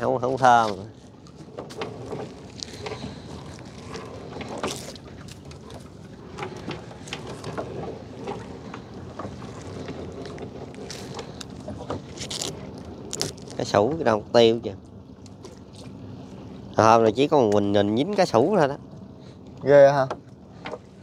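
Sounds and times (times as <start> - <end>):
gill net knocks and rustles: 0.4 - 8.5.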